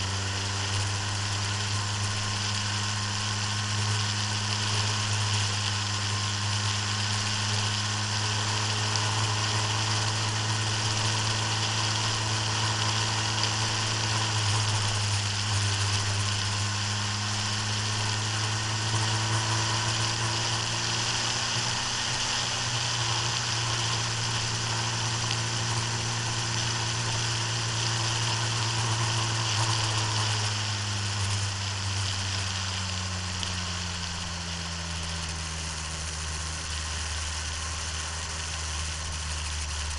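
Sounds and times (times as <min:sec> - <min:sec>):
vehicle engine running: 0:00.0 - 0:39.9
wind and road noise: 0:00.0 - 0:39.9.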